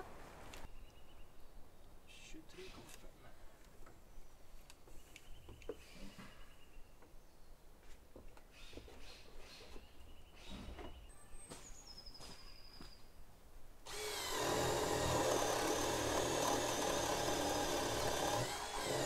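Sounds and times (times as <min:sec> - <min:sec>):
power tool running: 0:13.9 - 0:19.0.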